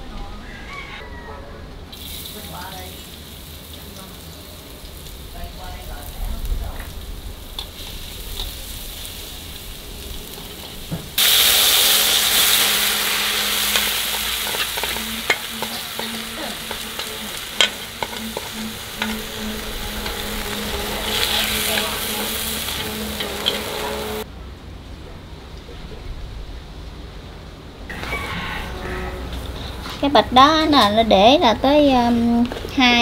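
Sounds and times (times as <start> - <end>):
frog legs sizzling in hot oil: 1.9 - 24.3.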